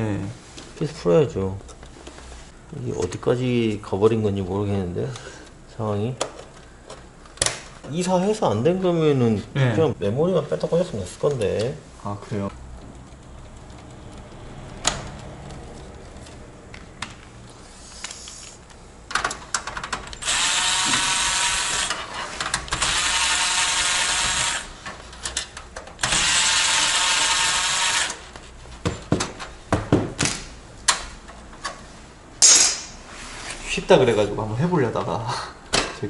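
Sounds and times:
electric screwdriver spinning: 0:20.2 - 0:22.0, 0:22.8 - 0:24.7, 0:26.1 - 0:28.2.

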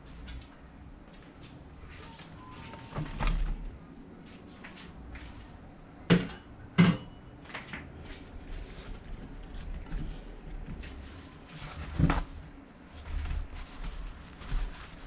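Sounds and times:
okra rustling on paper towel: 0:08.1 - 0:15.0.

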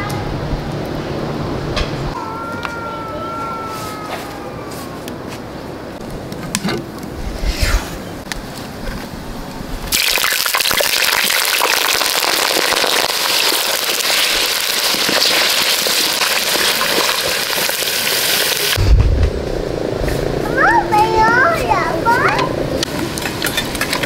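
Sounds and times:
potatoes sizzling in hot oil: 0:09.9 - 0:18.8.

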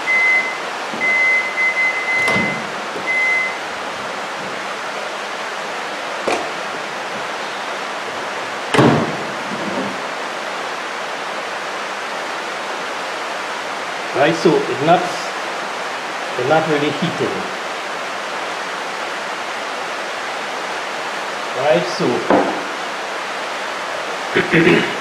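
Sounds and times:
microwave oven beeping: 0:00.0 - 0:03.8
steady rain hiss: 0:00.0 - 0:25.0
microwave door thump: 0:08.7 - 0:09.2.

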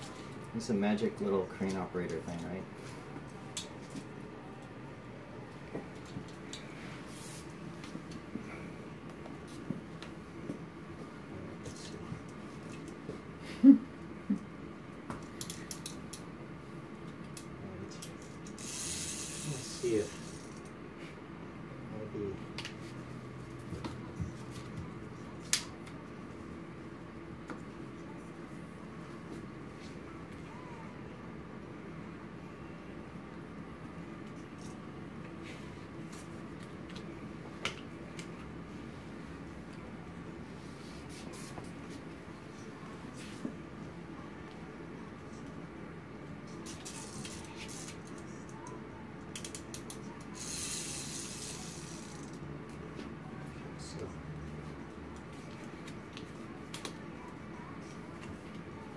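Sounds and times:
toy plastic gears ratcheting: 0:18.0 - 0:20.7, 0:46.6 - 0:48.4, 0:49.3 - 0:52.4.

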